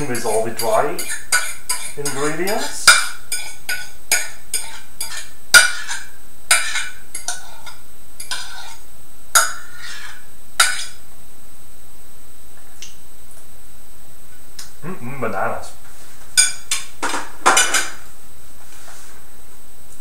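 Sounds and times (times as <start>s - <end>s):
metal utensil scraping a plate: 0.0s - 8.8s, 9.4s - 11.0s.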